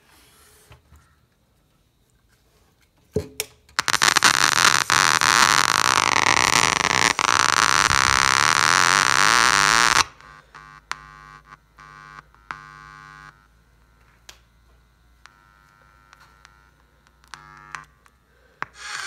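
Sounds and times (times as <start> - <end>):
short buzzes: 3.8 - 14.1, 15.2 - 19.0.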